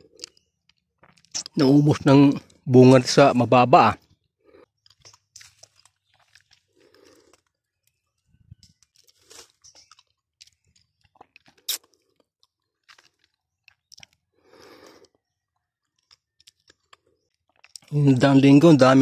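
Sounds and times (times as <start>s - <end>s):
leaves and twigs crackling: 5.0s - 7.3s.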